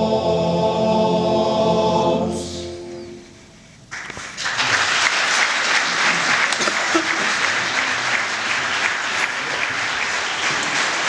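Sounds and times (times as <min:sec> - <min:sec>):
men's choir singing: 0:00.0 - 0:03.2
audience applause: 0:03.9 - 0:11.0.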